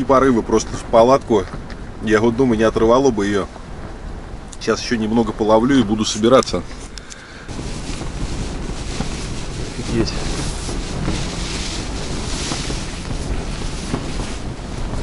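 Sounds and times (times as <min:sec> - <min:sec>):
strong wind buffeting tent: 0:00.0 - 0:15.0
fabric knocks: 0:07.6 - 0:15.0.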